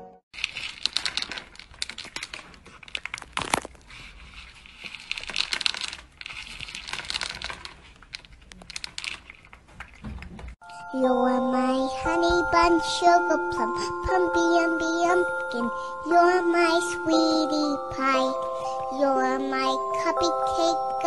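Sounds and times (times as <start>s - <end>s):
kibble rattling in plastic bowl: 0.4s - 4.0s, 4.6s - 10.5s.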